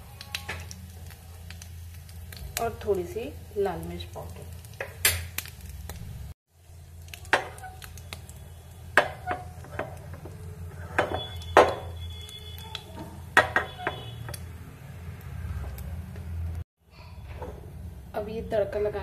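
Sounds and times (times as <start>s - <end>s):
metal spatula scraping a pan: 9.0s - 11.5s.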